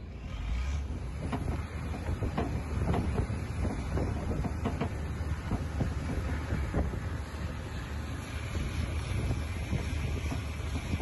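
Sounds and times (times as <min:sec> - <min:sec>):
boat engine rumble: 0:00.0 - 0:11.0
knocks and thuds from hull: 0:01.1 - 0:07.1.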